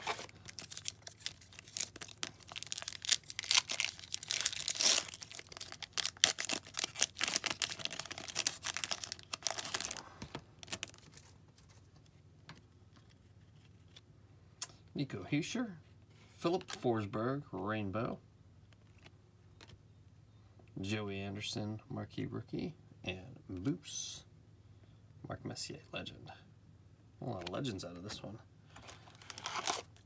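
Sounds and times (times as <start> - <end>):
foil wrapper tearing and crinkling: 0.0 - 10.0, 10.6 - 11.3, 28.8 - 30.0.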